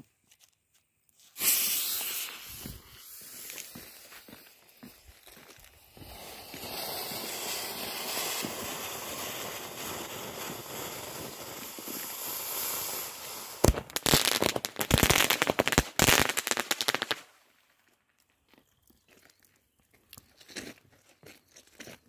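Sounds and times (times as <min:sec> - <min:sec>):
firework fizzing sparks: 0:01.2 - 0:04.6, 0:05.6 - 0:17.3
firework pops and crackles: 0:01.2 - 0:17.4.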